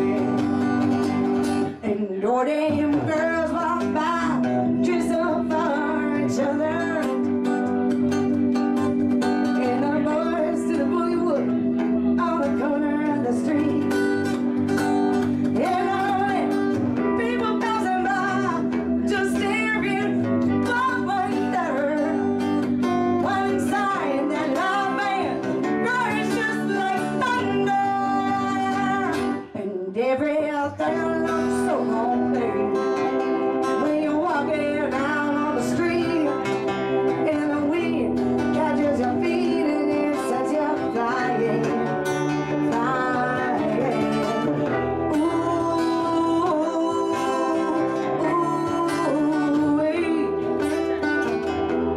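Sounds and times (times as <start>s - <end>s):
strummed acoustic guitar: 0.0s - 29.5s, 30.7s - 51.9s
woman singing: 0.0s - 51.9s
held organ chord: 3.5s - 29.4s.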